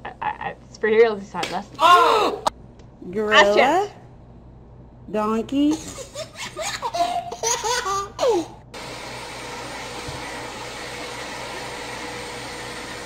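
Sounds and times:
toddler giggling and laughing: 5.7 - 8.6.

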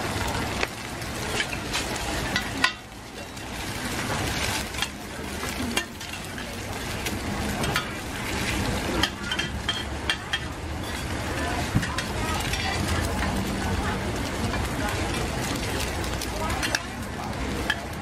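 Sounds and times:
egg sizzling in oil: 0.0 - 18.0
spatulas clinking on pan: 1.2 - 3.7, 4.3 - 13.6, 14.4 - 18.0
metal spatulas scraping pan: 1.3 - 11.2.

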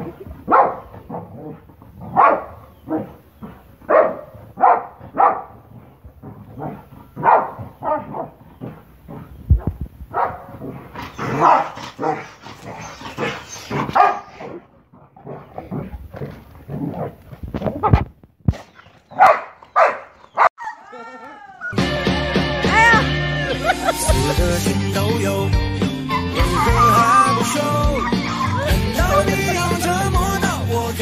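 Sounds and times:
dog barking: 0.1 - 3.2, 3.9 - 5.7, 6.5 - 8.8, 9.5 - 12.3, 13.2 - 14.6, 19.2 - 20.8.

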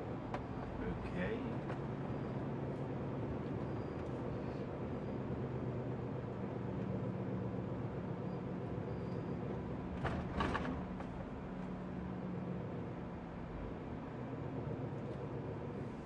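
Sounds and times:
lorry diesel engine drone: 0.0 - 16.0
road noise: 0.0 - 16.0.

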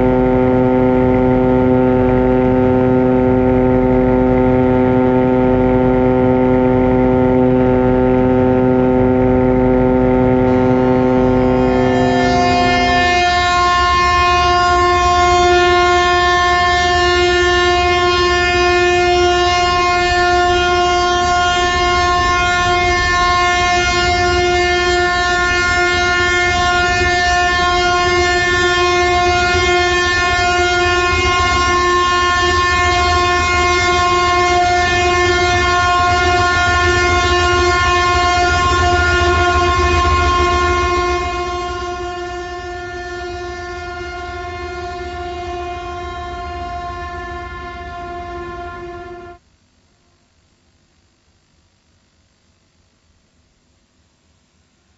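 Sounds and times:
low rumble: 0.0 - 16.6
long steady horn blast: 0.0 - 50.3.

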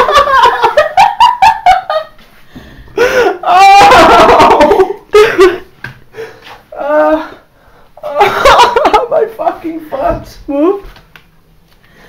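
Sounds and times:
person laughing: 3.0 - 5.7, 8.0 - 9.2.

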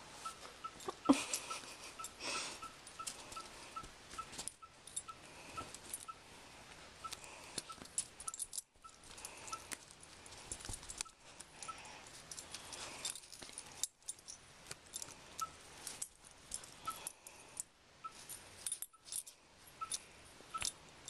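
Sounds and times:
puppy mouthing plush toy: 0.2 - 4.3
metallic jingles: 0.2 - 6.2, 7.2 - 21.0.

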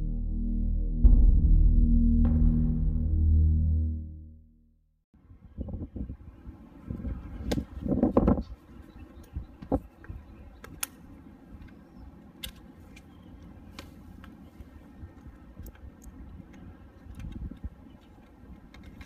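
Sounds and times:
sharp plastic clicks and taps: 9.2 - 11.0.

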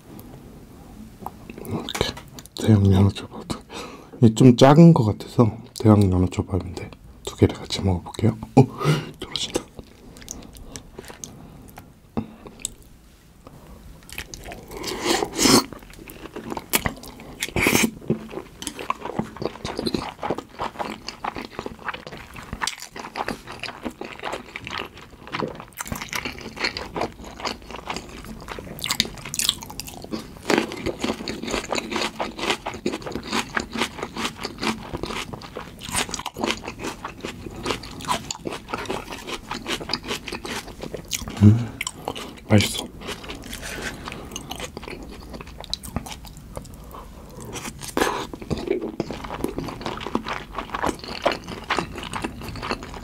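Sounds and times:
mouth chewing food: 14.0 - 53.0.

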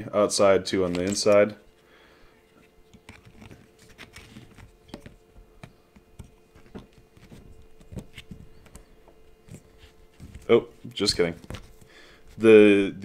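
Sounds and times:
faint steady hum: 0.0 - 13.0.

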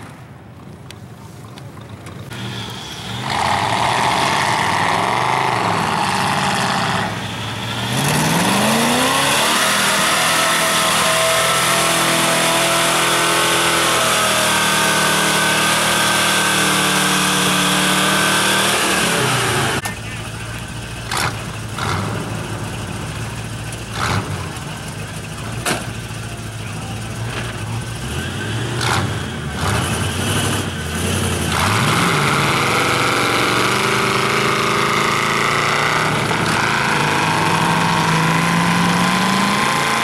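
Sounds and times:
pickup engine revving hard: 2.3 - 19.8, 27.9 - 40.0.

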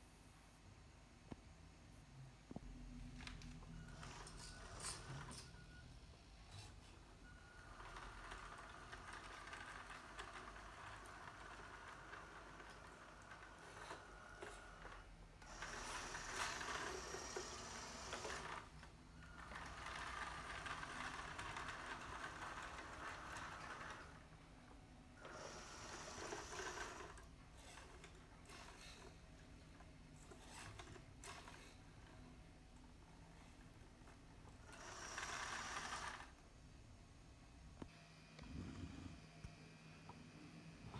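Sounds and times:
toy tractor motor whirring: 3.2 - 5.7, 7.5 - 24.4, 25.2 - 32.2, 33.2 - 36.4.

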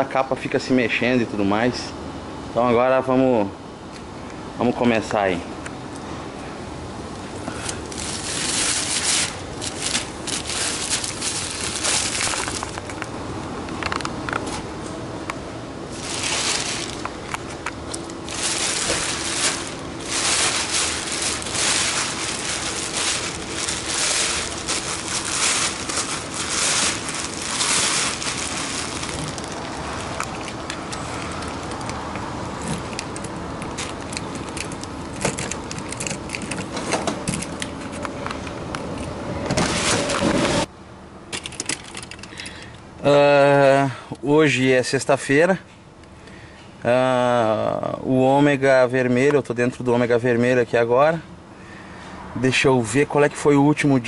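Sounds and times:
fabric cover rustling: 7.8 - 12.8, 15.9 - 30.6.

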